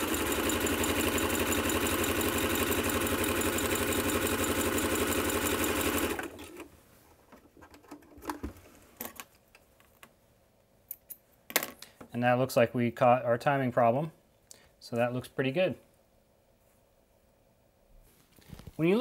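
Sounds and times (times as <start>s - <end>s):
sewing machine clattering: 0.0s - 6.7s
fabric rustling: 18.0s - 19.0s.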